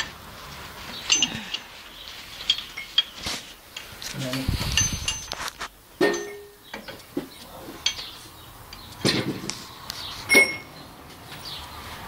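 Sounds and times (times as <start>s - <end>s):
metal tools clanking on metal: 1.0s - 1.8s, 2.4s - 8.2s, 10.3s - 10.8s.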